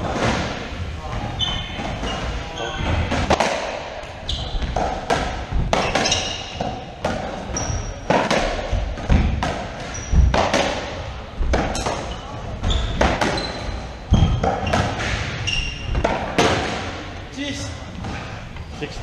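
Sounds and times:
racquetball hitting racquet and walls: 0:00.0 - 0:18.8
shoes squeaking on wooden floor: 0:01.0 - 0:03.1, 0:04.1 - 0:05.0, 0:05.6 - 0:08.2, 0:09.7 - 0:10.5, 0:11.4 - 0:16.3.

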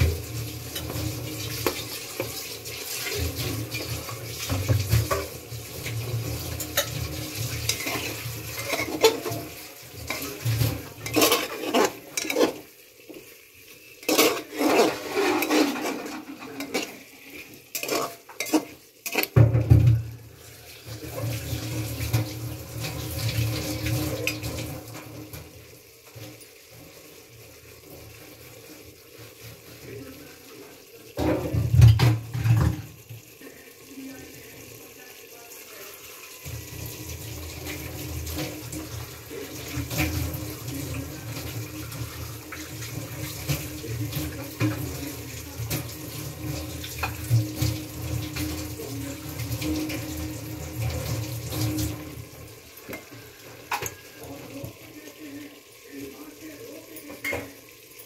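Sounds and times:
metal ladle scraping a pot: 0:00.0 - 0:12.7, 0:14.0 - 0:19.4.

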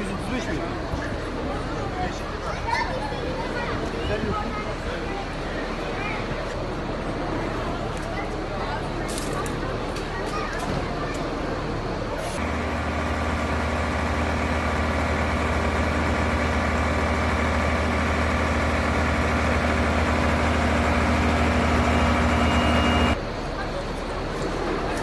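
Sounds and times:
fire truck engine humming: 0:00.0 - 0:25.0.

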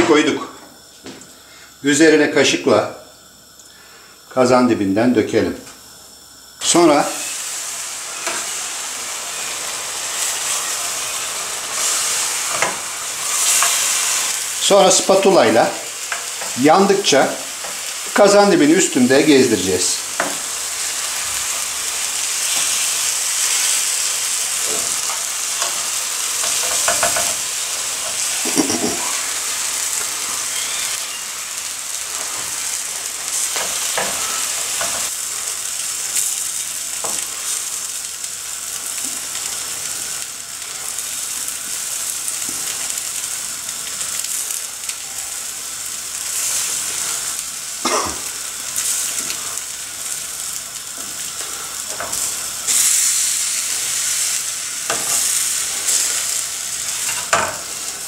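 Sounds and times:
pudding sizzling in a tray: 0:00.0 - 0:58.0.

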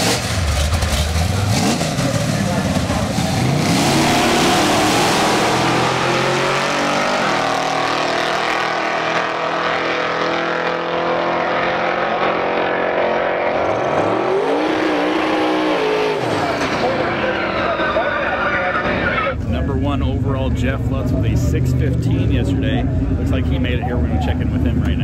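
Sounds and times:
van engine at full throttle: 0:00.0 - 0:25.0.

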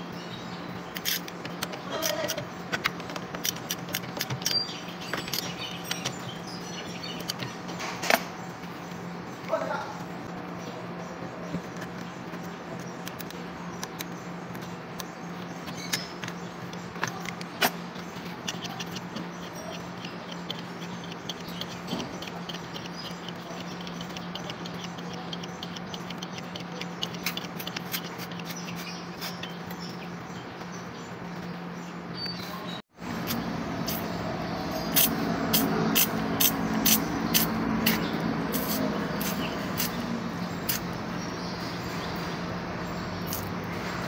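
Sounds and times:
steady low hum: 0:00.0 - 0:44.0
small metallic clicks and ticks: 0:00.9 - 0:06.3, 0:11.9 - 0:29.9.

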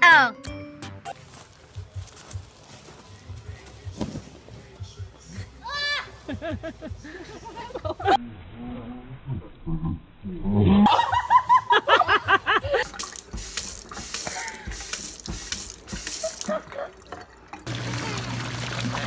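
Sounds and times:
baby splashing in water: 0:12.8 - 0:19.0
faucet running into metal sink: 0:12.8 - 0:19.0.

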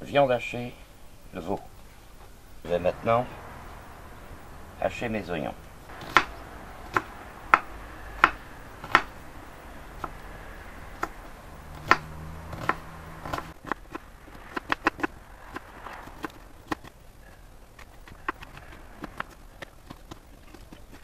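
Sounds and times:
knife chopping on wooden board: 0:06.0 - 0:09.1, 0:11.0 - 0:16.9.

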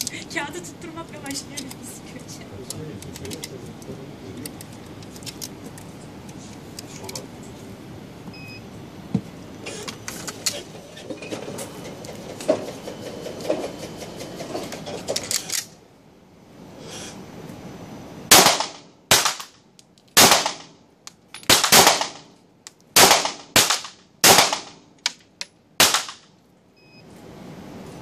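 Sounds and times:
handling clicks and rustling: 0:01.4 - 0:01.9, 0:02.6 - 0:07.3, 0:09.7 - 0:15.7.

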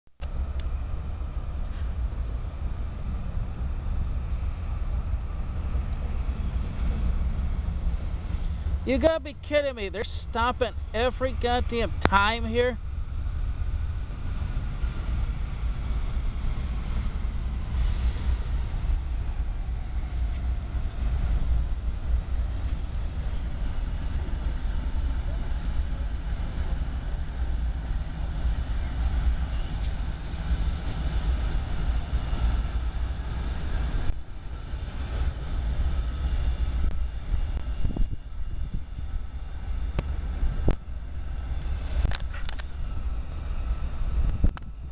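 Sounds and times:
diesel locomotive rumble: 0:00.2 - 0:44.9
hiss: 0:17.7 - 0:19.0, 0:41.7 - 0:42.4.

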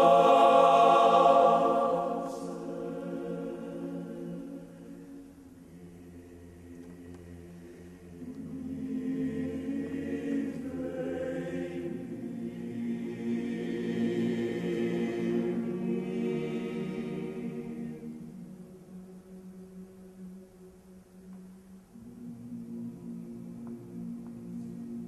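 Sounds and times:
male choir singing: 0:00.0 - 0:07.4, 0:08.1 - 0:19.0.

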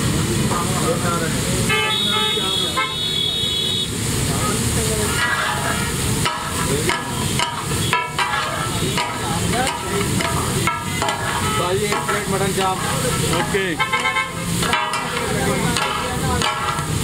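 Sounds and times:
meat sizzling: 0:00.0 - 0:17.0
metal spatulas striking a griddle: 0:05.2 - 0:17.0.

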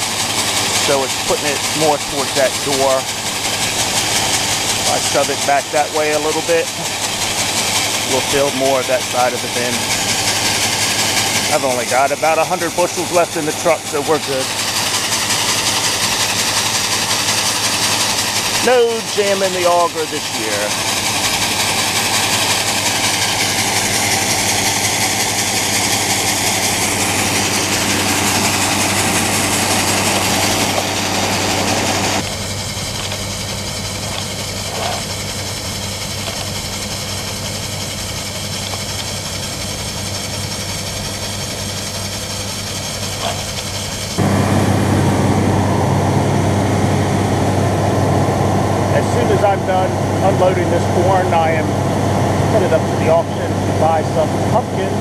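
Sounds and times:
corn pouring into metal bin: 0:00.0 - 0:40.8
engine hum: 0:00.0 - 0:55.0.

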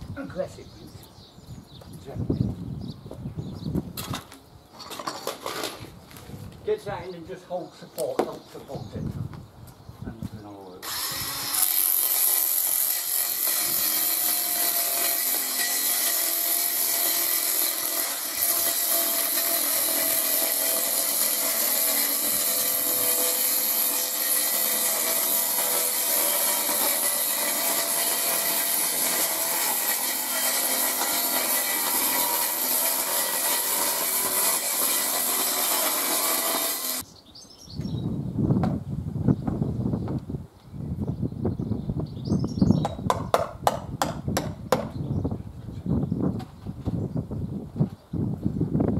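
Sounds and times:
power saw cutting plastic board: 0:10.8 - 0:37.0.

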